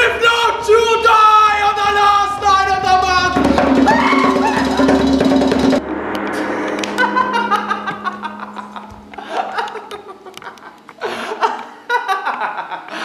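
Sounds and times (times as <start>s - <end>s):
low held musical note: 5.7s - 11.0s
person laughing: 6.9s - 13.0s.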